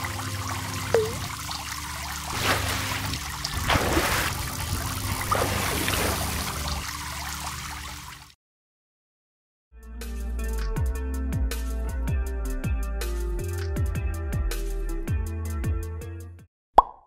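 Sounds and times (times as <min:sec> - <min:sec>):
water trickling and splashing: 0:00.0 - 0:08.4.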